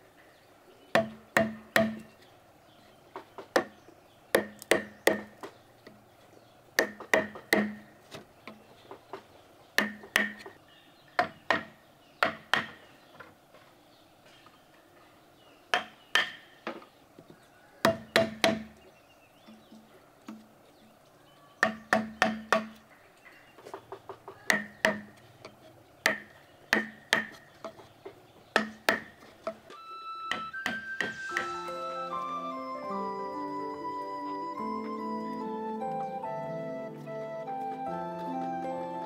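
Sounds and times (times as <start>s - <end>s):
tool striking wood: 1.0s - 2.1s, 4.4s - 5.5s, 6.8s - 7.9s, 9.8s - 10.5s, 11.2s - 12.8s, 15.8s - 16.8s, 17.9s - 18.8s, 21.6s - 22.8s, 24.5s - 25.2s, 26.0s - 27.8s, 28.5s - 29.6s, 30.3s - 31.5s.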